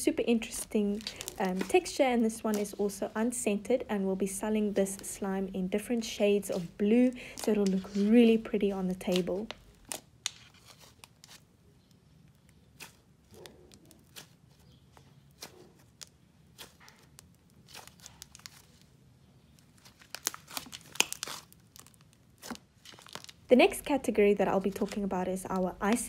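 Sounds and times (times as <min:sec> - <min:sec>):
slime squeezed by hand crackling: 0:08.9 - 0:18.9, 0:19.6 - 0:23.9.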